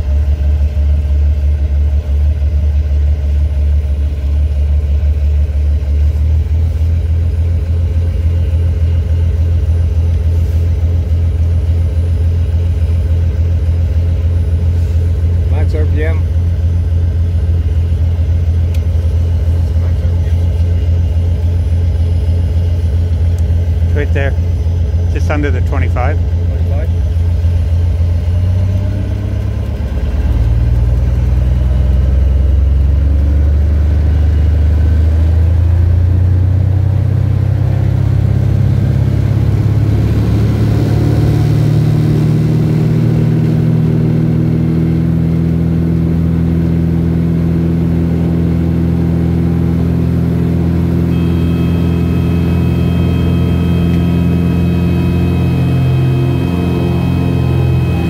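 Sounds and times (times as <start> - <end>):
propeller aircraft engine: 0.0 - 58.0
steady high tone: 50.9 - 58.0.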